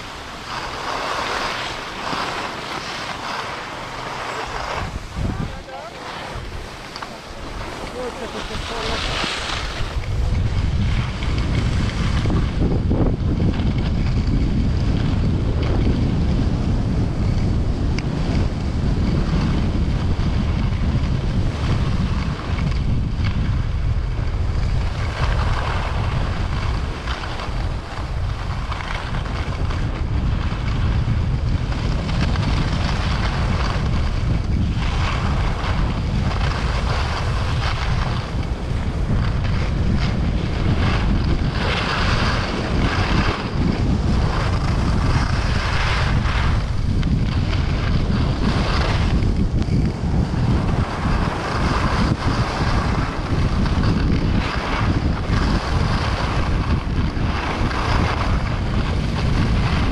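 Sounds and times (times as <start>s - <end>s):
skis hissing on snow: 0.0s - 10.4s
wind rushing over microphone: 0.0s - 59.9s.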